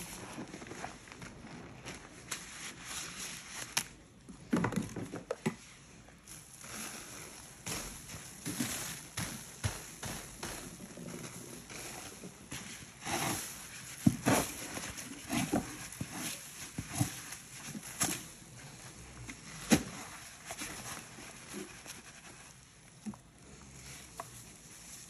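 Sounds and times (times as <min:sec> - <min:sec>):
soft hissing patter with crackles: 0:00.0 - 0:04.4, 0:05.4 - 0:25.0
powdered cleanser pouring on sponges: 0:06.2 - 0:25.0.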